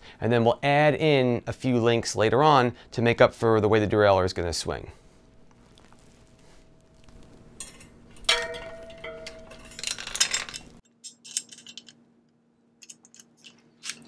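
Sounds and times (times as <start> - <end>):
bicycle chain clinking and rattling: 7.5 - 11.9
metal ringing clank: 7.6 - 10.8.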